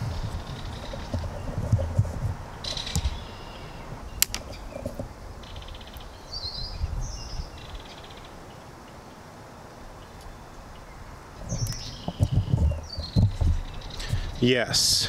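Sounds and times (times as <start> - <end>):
songbirds chirping and trilling: 0.0 - 15.0
sharp click: 4.2 - 4.5.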